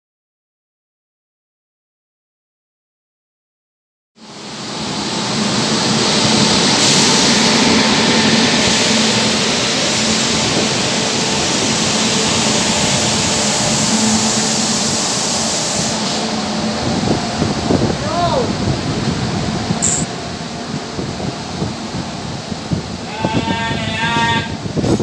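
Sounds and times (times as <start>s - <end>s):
train wheels on rails: 4.4s - 23.0s.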